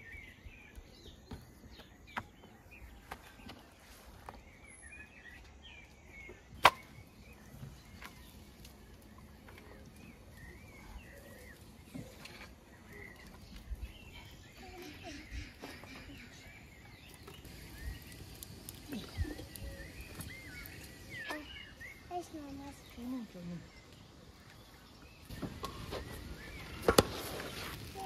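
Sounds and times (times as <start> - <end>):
small birds chirping: 0.0 - 28.0.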